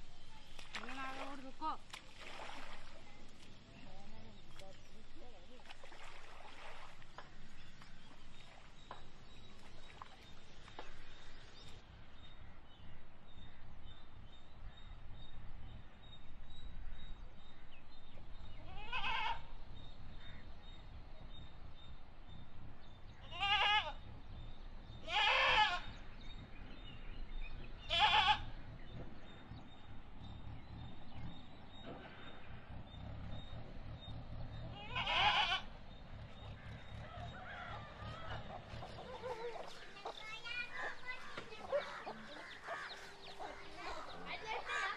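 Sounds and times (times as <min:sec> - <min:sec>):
low steady rumble: 0:00.0 - 0:44.9
goats bleating: 0:18.7 - 0:19.4, 0:23.3 - 0:24.0, 0:25.0 - 0:25.8, 0:27.9 - 0:28.5, 0:34.8 - 0:35.7.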